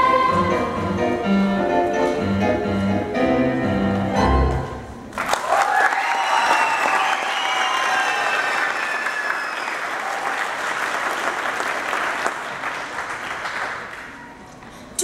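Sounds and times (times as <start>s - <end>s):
audience applauding: 5.1s - 14.5s.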